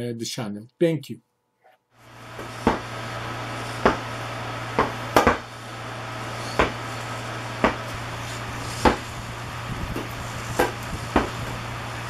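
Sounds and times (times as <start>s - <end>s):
steady low hum: 2.0s - 12.0s
inflatable ball thumps: 2.4s - 2.9s, 3.8s - 4.1s, 4.8s - 5.5s, 6.6s - 6.8s, 8.8s - 9.2s, 9.9s - 11.6s.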